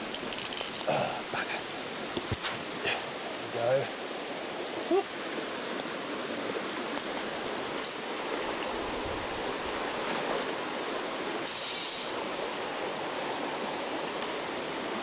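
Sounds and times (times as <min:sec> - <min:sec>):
river water rushing: 0:00.0 - 0:15.0
fishing reel ratchet buzz: 0:11.4 - 0:12.2.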